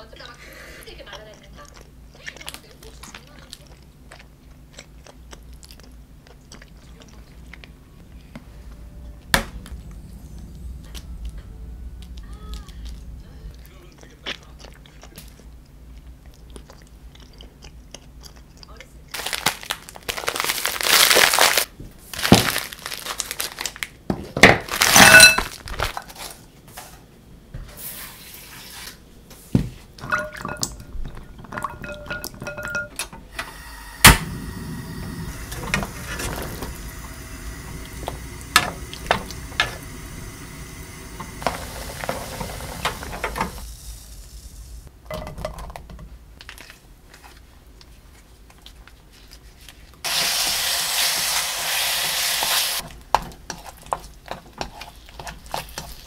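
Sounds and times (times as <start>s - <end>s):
plastic packaging crinkling: 19.1s - 26.4s
steady hiss: 33.3s - 45.1s, 50.0s - 52.8s.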